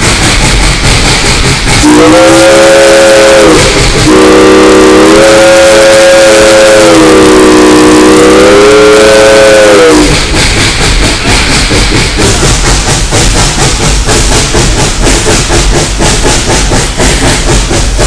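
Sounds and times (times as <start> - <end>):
locomotive rhythmic exhaust: 0.0 - 18.0
steam locomotive whistle: 1.8 - 10.4.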